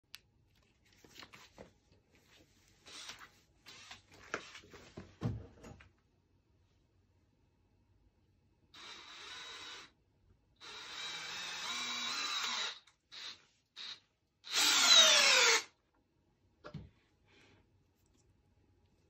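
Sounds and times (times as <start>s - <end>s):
drill driving screw into wood: 8.8s - 10.0s, 10.6s - 15.7s.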